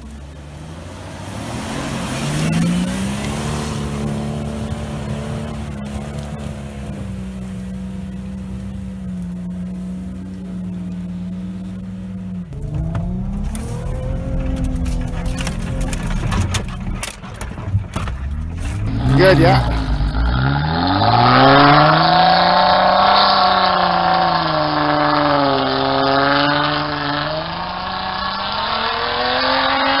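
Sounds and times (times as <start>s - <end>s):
wheels spinning in snow: 0.0s - 26.2s
car engine revving: 0.0s - 30.0s.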